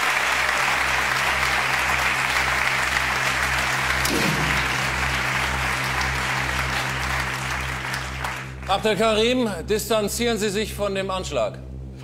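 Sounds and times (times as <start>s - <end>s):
audience applauding: 0.0s - 9.0s
steady low hum: 0.1s - 12.0s
low bass pulse: 2.6s - 12.0s.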